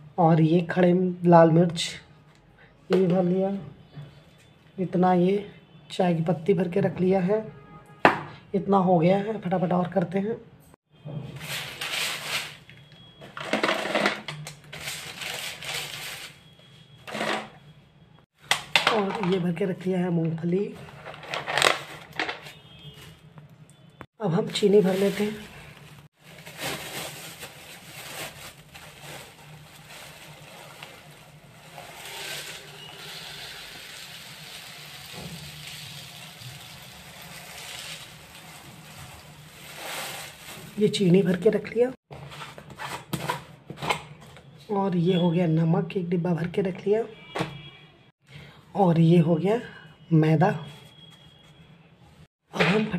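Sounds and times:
plastic bag crinkling: 0:14.7 - 0:16.4, 0:24.7 - 0:41.0.

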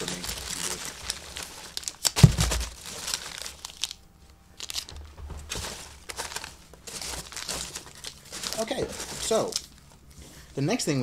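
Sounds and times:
packing peanuts and wrappers rustling: 0:00.0 - 0:10.9
dull thump: 0:02.2 - 0:02.8, 0:04.9 - 0:05.8.

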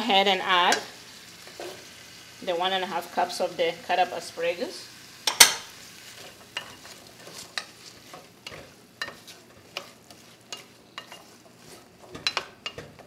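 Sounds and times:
faint sizzle: 0:00.0 - 0:13.0
wooden spoon scraping pot: 0:06.0 - 0:13.0.

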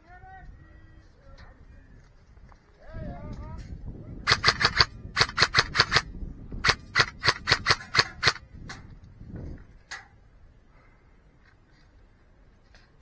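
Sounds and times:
airsoft gun shots: 0:04.3 - 0:08.4.

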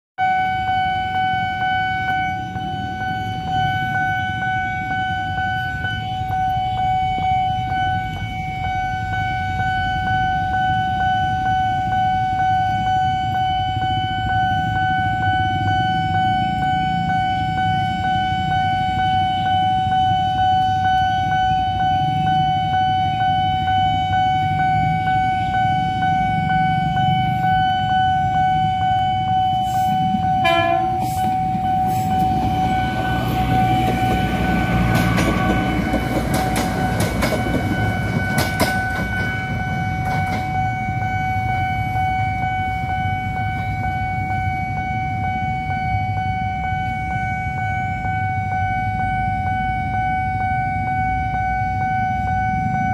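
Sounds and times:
diesel train rumble: 0:00.2 - 0:52.9
level crossing warning alarm: 0:00.2 - 0:52.9
train horn blast: 0:29.6 - 0:36.4
train wheels clattering on rails: 0:30.1 - 0:40.8.

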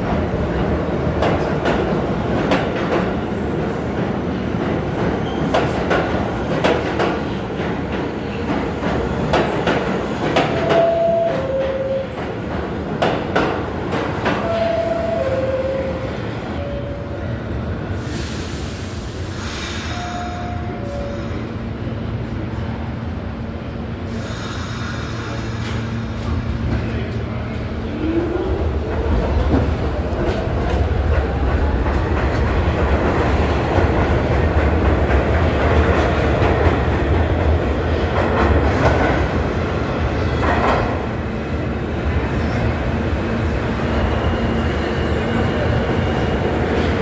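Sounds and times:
subway train wheels clattering: 0:00.0 - 0:47.0
air hiss: 0:18.0 - 0:20.2, 0:24.1 - 0:25.9.

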